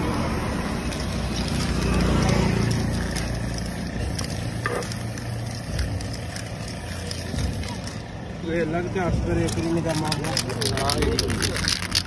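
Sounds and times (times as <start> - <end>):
vehicle engine rumbling: 0.0 - 12.0.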